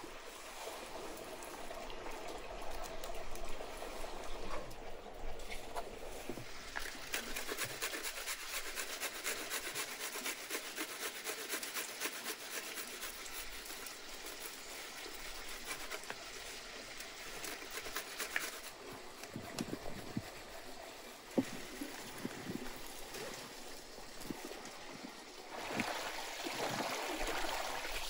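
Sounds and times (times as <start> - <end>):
box grater rasping: 6.9 - 14.4, 17.4 - 20.2.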